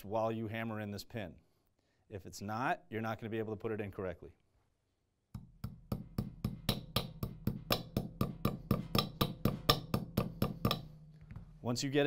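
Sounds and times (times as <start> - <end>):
hammer tapping a pin: 5.3 - 11.6.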